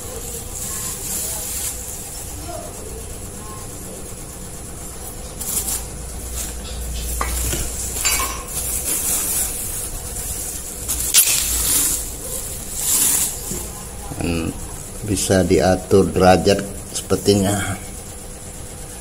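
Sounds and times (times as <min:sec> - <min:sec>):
plastic wrapping crinkling: 0:00.0 - 0:02.4, 0:05.0 - 0:14.1
metal parts clinking: 0:10.9 - 0:12.1.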